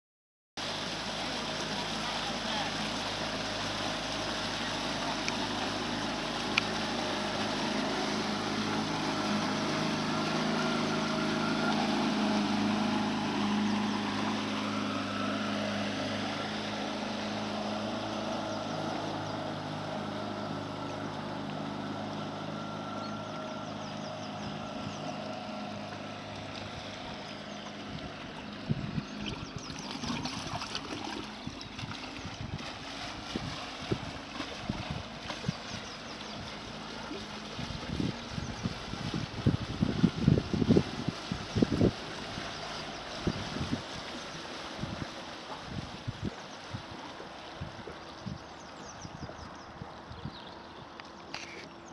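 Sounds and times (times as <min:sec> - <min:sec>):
outboard motor running: 0:00.6 - 0:51.9
water wash: 0:00.6 - 0:51.9
wind on microphone: 0:27.7 - 0:30.7, 0:31.3 - 0:36.6, 0:37.5 - 0:50.9.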